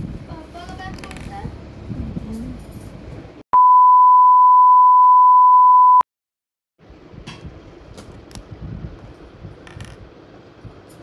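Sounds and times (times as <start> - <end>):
high pure beep tone: 3.5 - 6.1.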